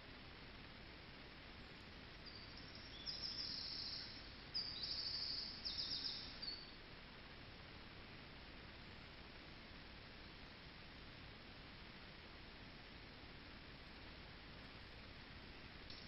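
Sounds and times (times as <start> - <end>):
faint background hiss: 0.0 - 16.0
songbird singing high trills: 2.1 - 6.8.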